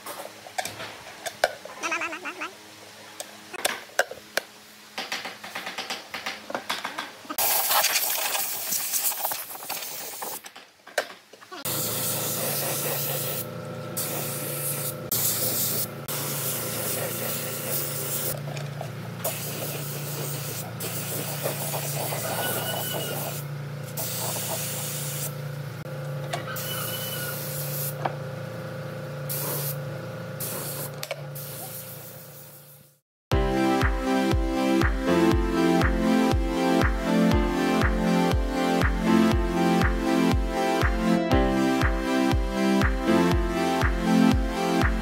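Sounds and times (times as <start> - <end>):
spray gun hissing: 7.4 - 10.4, 11.7 - 18.4, 19.2 - 25.4, 26.6 - 28.0, 29.3 - 29.8, 30.4 - 32.9
motor hum: 11.5 - 31.6.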